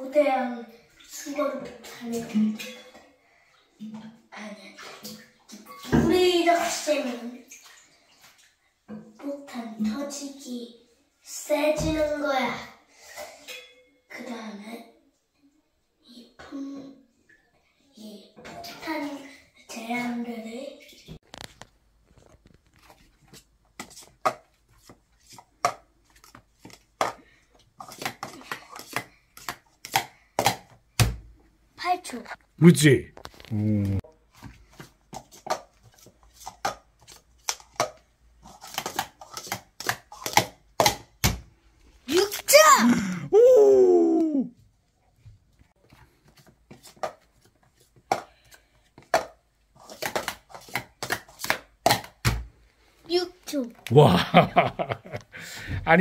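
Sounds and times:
plastic cups clacking: 21.2s - 30.9s, 34.3s - 41.4s, 45.8s - 52.4s.

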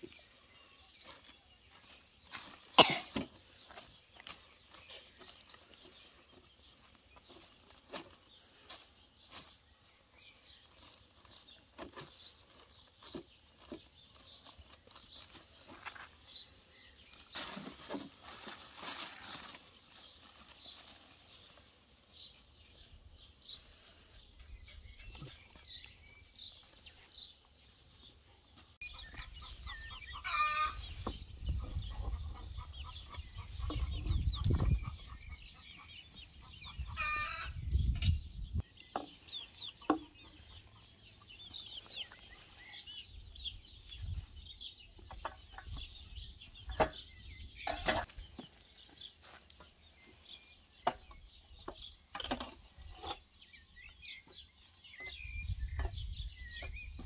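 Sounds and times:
small birds chirping: 0.0s - 57.0s
chickens clucking: 27.8s - 38.0s, 38.8s - 43.1s, 46.6s - 50.2s
loud long bird calls: 28.9s - 31.0s.

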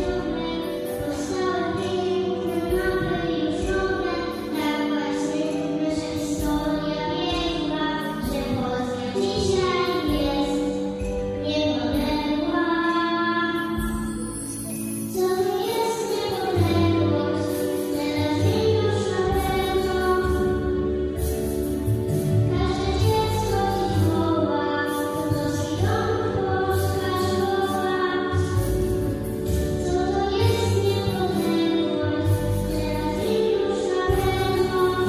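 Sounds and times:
instrumental accompaniment: 0.0s - 35.0s.

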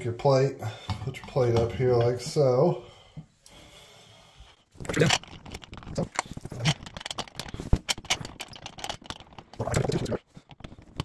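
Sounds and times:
metal screws clicking and rattling: 4.9s - 9.7s.

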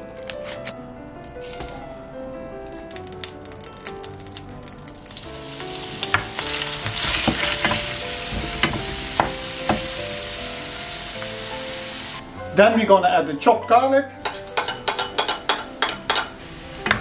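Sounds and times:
onions sizzling in frying pan: 1.4s - 12.2s, 14.2s - 17.0s
wooden spoon knocking on pan: 5.9s - 10.2s, 14.2s - 17.0s.

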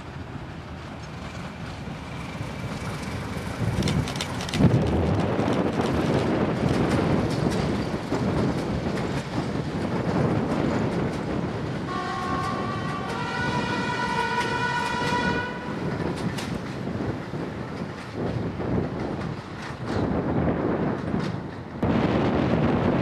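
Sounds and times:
diesel locomotive rumbling past: 0.0s - 23.0s
wind buffeting microphone: 1.2s - 23.0s
two-tone locomotive horn: 11.9s - 15.8s.

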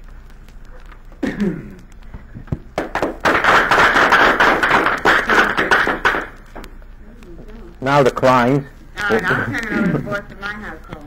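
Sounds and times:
people clapping: 2.7s - 6.7s.

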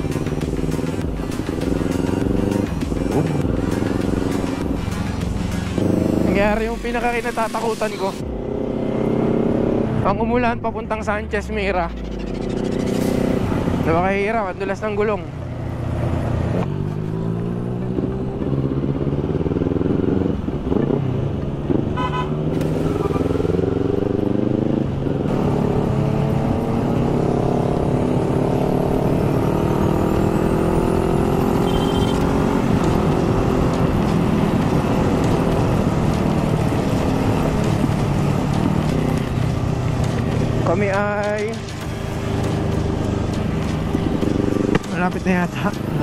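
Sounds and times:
motorcycle engine shifting gears: 0.0s - 6.5s, 8.2s - 10.1s, 15.0s - 46.0s.

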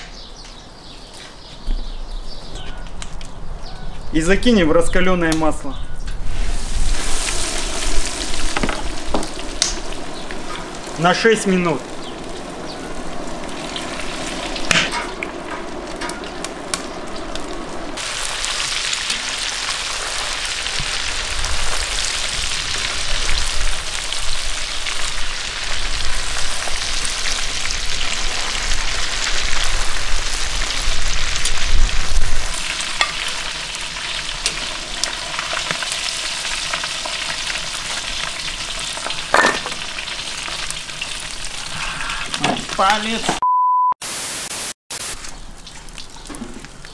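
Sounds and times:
food deep-frying in oil: 6.3s - 43.4s, 44.1s - 46.9s.

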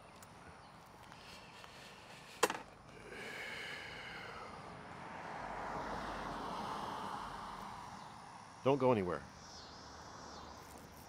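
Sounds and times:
vehicle passing with tyre noise: 2.4s - 11.0s.

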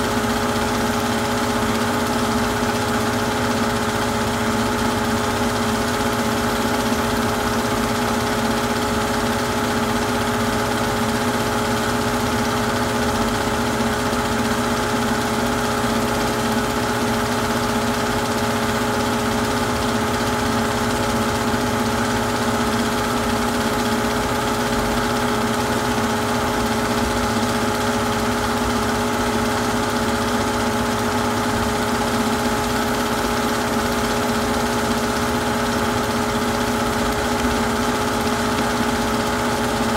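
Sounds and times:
film projector motor whirring: 0.0s - 39.9s.

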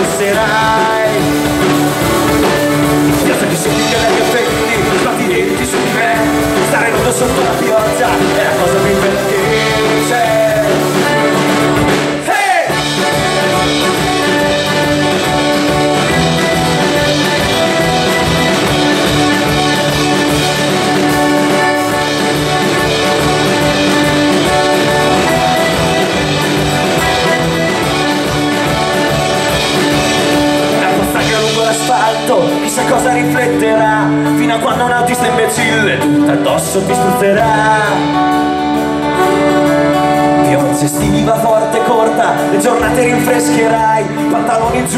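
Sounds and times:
accordion holding long notes: 0.0s - 34.4s
steady drum beat: 0.0s - 44.9s
strummed guitars: 0.0s - 44.9s.

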